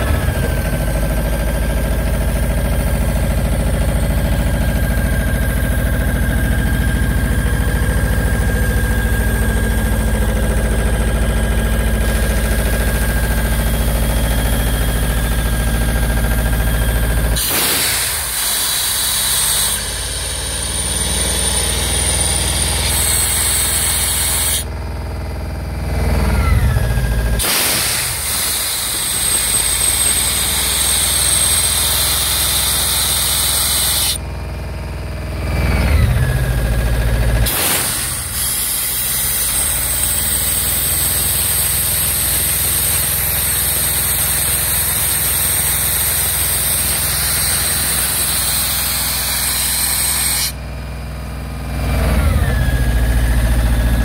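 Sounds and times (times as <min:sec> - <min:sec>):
air compressor engine running: 0:00.0 - 0:54.0
compressed air hissing: 0:17.4 - 0:20.3, 0:27.4 - 0:34.2, 0:37.5 - 0:40.9, 0:44.8 - 0:50.6.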